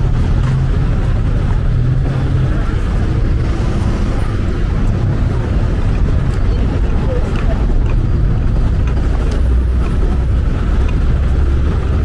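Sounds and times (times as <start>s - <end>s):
cars passing: 0.0s - 12.0s
low engine hum: 0.0s - 12.0s.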